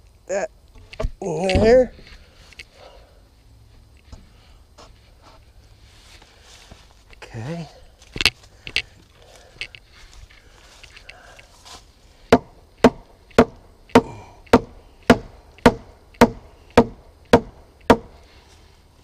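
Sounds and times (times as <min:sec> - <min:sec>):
sharp knocks on wood: 0:12.3 - 0:18.2.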